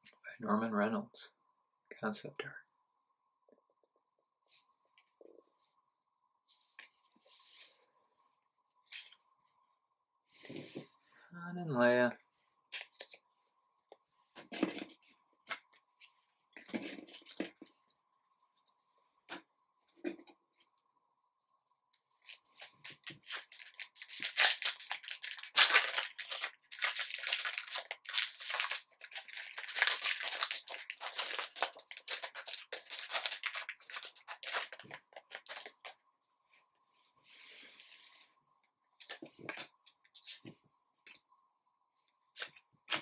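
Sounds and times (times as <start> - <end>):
foil wrapper tearing and crinkling: 22.3 - 35.9.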